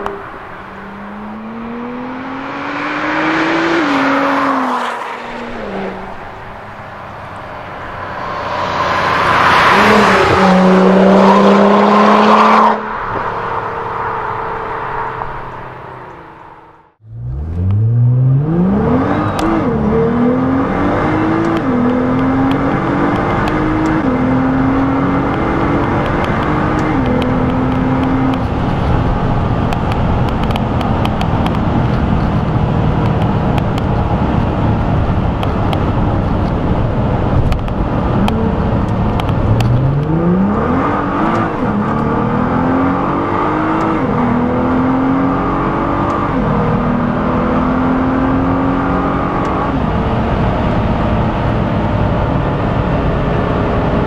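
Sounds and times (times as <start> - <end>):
car engine revving through gears: 0.0 - 6.3, 7.1 - 54.0
sports car accelerating past: 0.0 - 28.4.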